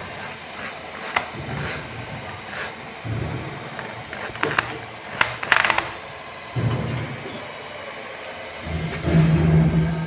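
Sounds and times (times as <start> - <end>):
electric drill boring metal: 3.8 - 6.4.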